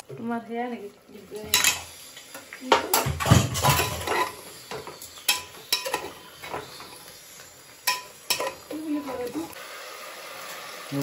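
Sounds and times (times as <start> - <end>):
metal spatula scraping a pot: 3.0 - 7.1, 7.8 - 9.4.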